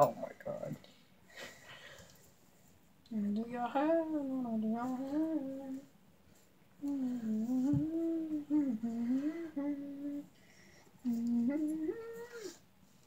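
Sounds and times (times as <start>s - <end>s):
person humming: 3.1s - 5.9s, 6.8s - 10.3s, 11.0s - 12.6s.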